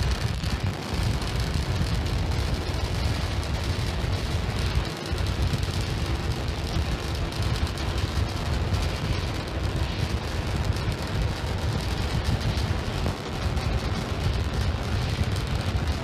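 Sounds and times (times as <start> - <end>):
rocket engines rumbling: 0.0 - 16.0.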